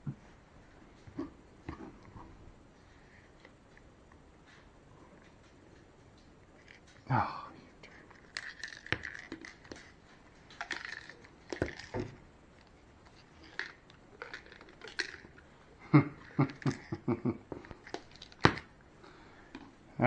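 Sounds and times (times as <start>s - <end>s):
hands handling small parts: 7.8s - 15.5s, 16.3s - 18.8s.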